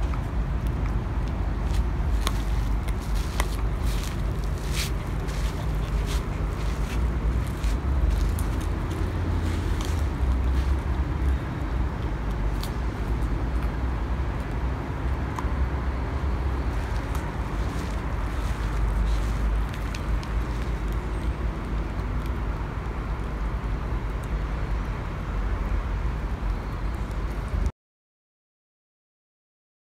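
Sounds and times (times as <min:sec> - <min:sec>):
dogs crunching bones: 0:00.0 - 0:15.5, 0:16.6 - 0:24.4
steady low rumble: 0:00.0 - 0:27.7.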